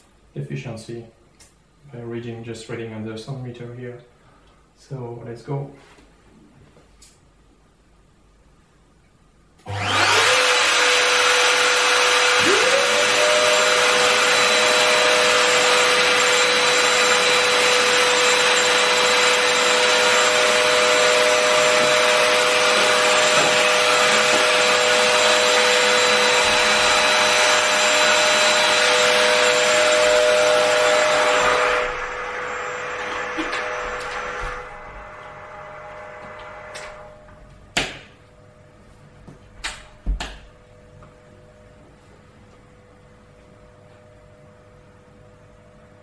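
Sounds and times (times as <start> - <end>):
trim router whining: 9.6 - 37.3
dust vacuum running: 9.7 - 37.4.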